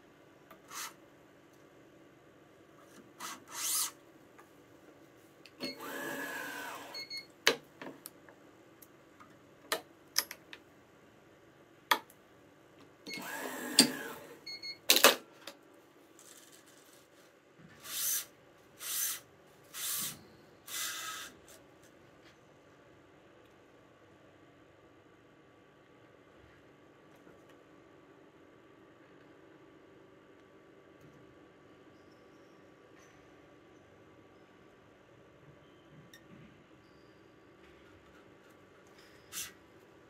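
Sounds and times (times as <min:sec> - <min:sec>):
stringing machine whirring: 0:02.8 - 0:04.0, 0:05.5 - 0:07.2, 0:13.1 - 0:14.5, 0:17.7 - 0:21.6.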